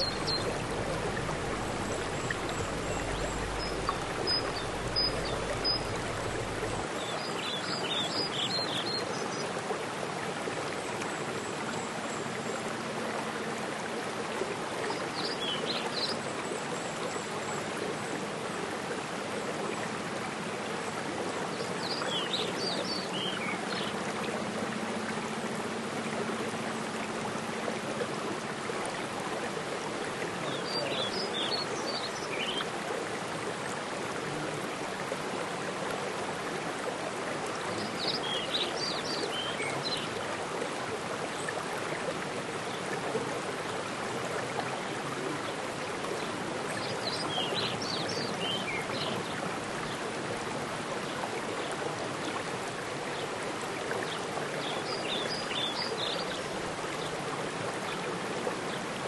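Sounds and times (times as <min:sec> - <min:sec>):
rain falling on pool: 0:00.0 - 0:07.0
stream and waterfall running: 0:00.0 - 0:59.0.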